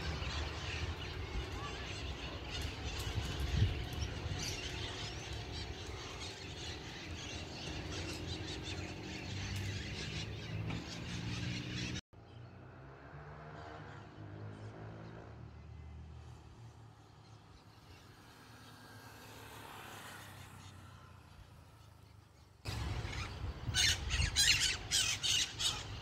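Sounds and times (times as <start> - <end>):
small birds chirping: 0.0 - 12.6.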